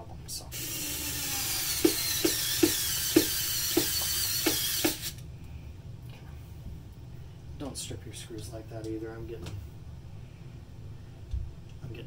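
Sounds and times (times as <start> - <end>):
electric screwdriver running: 0.6 - 5.2.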